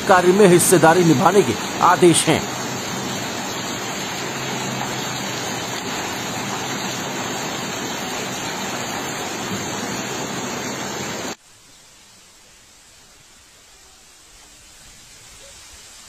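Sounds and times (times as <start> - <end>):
floodwater rushing: 0.0 - 11.4
faint hiss: 0.0 - 16.0.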